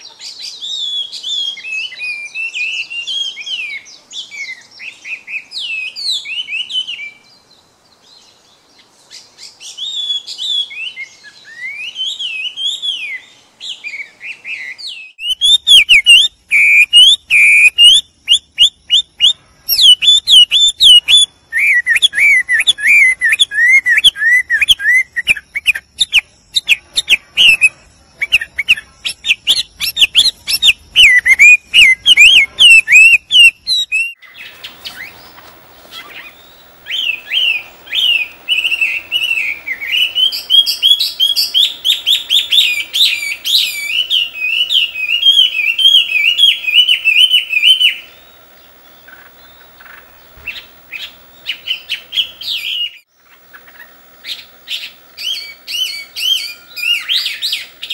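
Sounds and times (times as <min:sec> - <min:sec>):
bird singing whistled runs: 0:09.1 - 0:48.4, 0:53.8 - 0:57.9.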